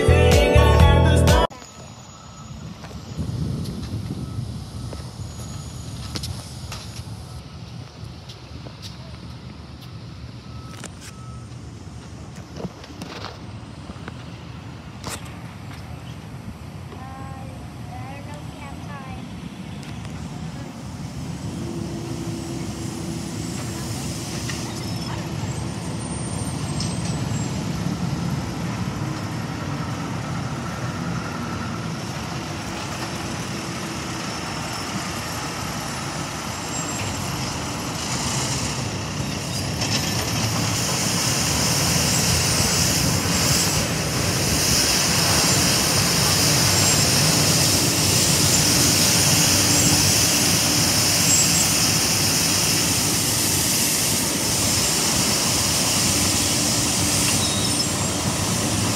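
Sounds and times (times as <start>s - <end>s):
street sweeper engine running: 0.0s - 58.9s
broom brushing the road: 34.3s - 58.9s
blower hissing: 40.6s - 58.9s.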